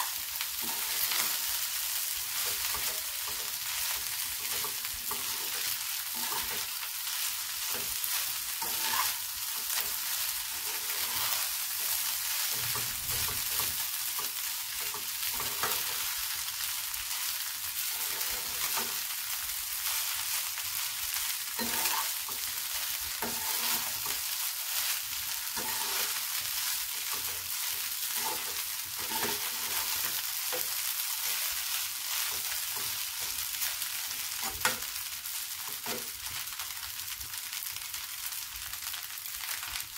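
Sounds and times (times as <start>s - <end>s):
rice sizzling in a pan: 0.0s - 39.9s
metal spatula scraping a pan: 0.6s - 16.3s, 17.8s - 19.1s, 19.8s - 34.9s.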